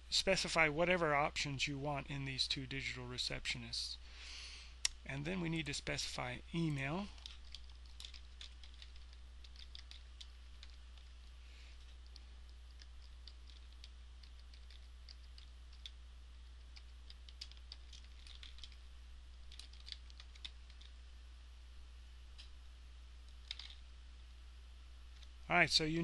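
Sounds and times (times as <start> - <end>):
keyboard typing: 7.1 - 11.1, 12.0 - 16.0, 16.6 - 18.8, 19.4 - 21.0, 23.3 - 23.8.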